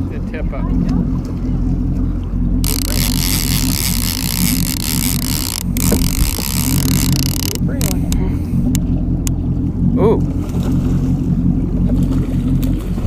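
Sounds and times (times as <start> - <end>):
boat engine running: 0.0 - 13.0.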